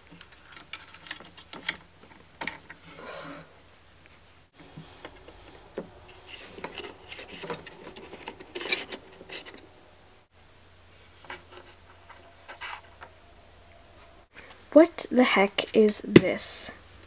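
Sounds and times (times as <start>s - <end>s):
small objects clicking and tapping: 0.0s - 2.8s.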